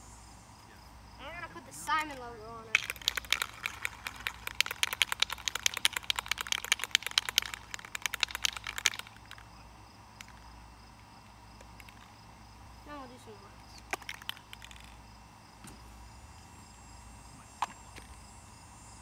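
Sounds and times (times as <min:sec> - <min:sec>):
spray can shaken with ball rattling: 0:01.8 - 0:10.5, 0:11.6 - 0:12.2, 0:13.7 - 0:15.0.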